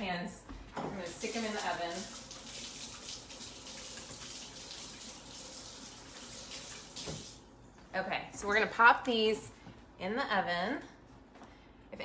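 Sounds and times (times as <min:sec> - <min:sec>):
faucet running: 0:00.9 - 0:07.5.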